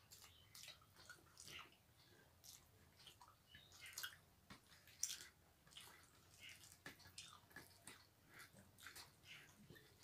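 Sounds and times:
soft chewing: 0:00.0 - 0:10.0
fingers squishing rice: 0:02.3 - 0:10.0.

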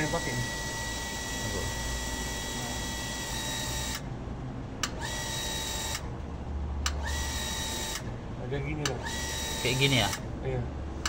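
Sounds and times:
water pump motor whine: 0:00.0 - 0:04.1, 0:04.9 - 0:06.1, 0:07.0 - 0:08.1, 0:09.0 - 0:10.2.

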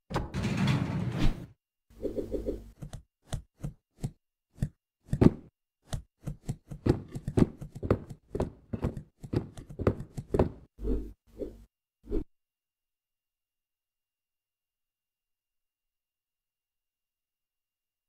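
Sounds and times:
cartoon knocks and thuds: 0:02.8 - 0:10.7.

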